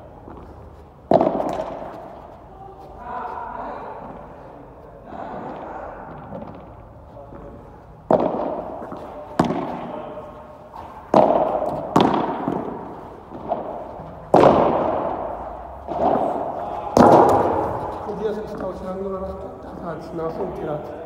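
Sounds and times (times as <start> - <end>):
padel ball pops with echo: 8.1 - 10.0, 11.1 - 15.2, 15.9 - 18.1.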